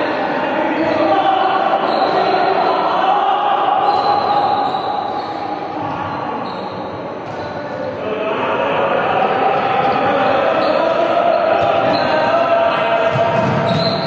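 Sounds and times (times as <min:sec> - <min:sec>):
overlapping voices: 0:00.0 - 0:06.4, 0:07.3 - 0:14.0
balls bouncing on court: 0:06.7 - 0:07.9, 0:10.8 - 0:14.0.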